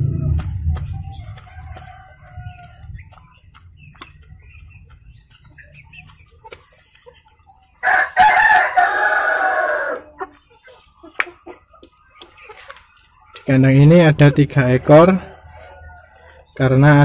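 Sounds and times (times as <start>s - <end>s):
hens pecking feed: 0.0s - 17.0s
rooster crowing: 7.8s - 10.1s, 14.8s - 16.4s.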